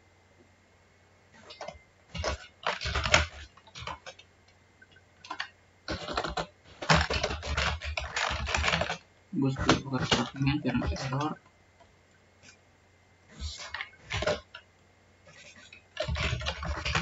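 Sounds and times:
typing on computer keyboard: 0:01.4 - 0:09.0, 0:15.3 - 0:17.0.

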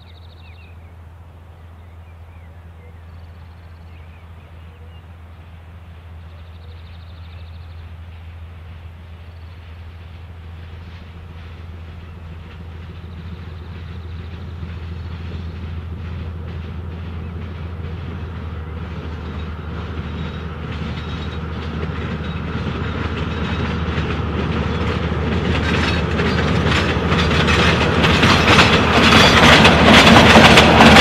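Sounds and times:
diesel locomotive engine hum: 0:00.0 - 0:31.0
train wheels clattering over rails: 0:09.4 - 0:31.0.

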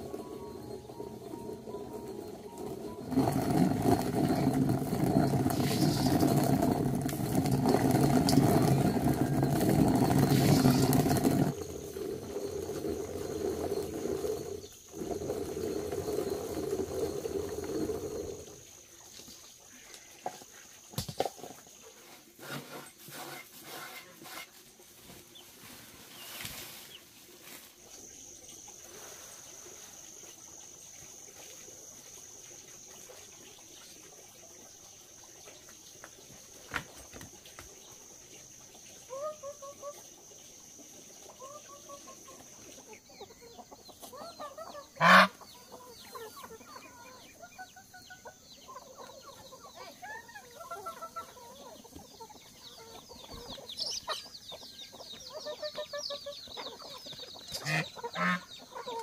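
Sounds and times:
thin high tone: 0:00.0 - 0:06.9
stone mill grinding corn: 0:00.0 - 0:18.7, 0:21.0 - 0:24.6.

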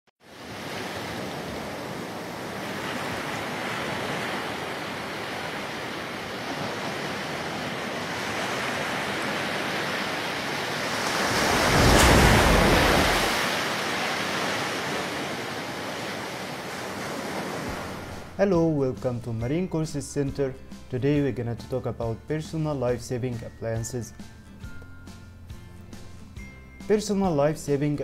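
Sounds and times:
sea waves and surf: 0:00.2 - 0:18.8.

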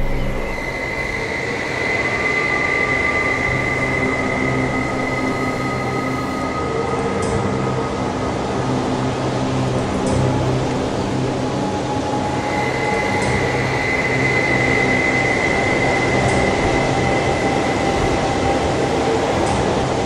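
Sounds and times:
thin high whine: 0:00.0 - 0:06.8
dense rush of noise: 0:00.0 - 0:20.0
low drone tone: 0:00.0 - 0:20.0.

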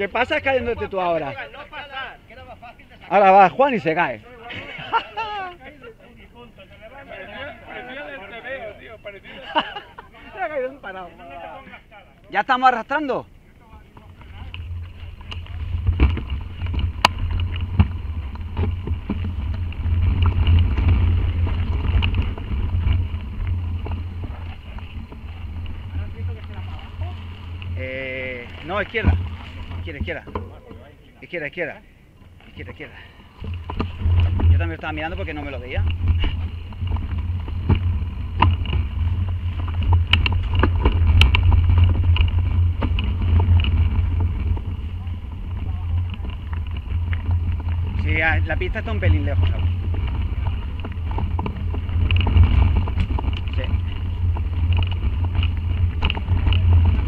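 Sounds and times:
wind buffeting microphone: 0:13.8 - 0:30.7, 0:32.7 - 0:57.0
bike knocks and rattles: 0:13.9 - 0:30.9, 0:33.3 - 0:57.0.

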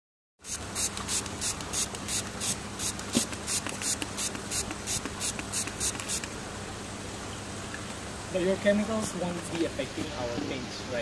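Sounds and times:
spray bottle hissing mist: 0:00.4 - 0:06.4.

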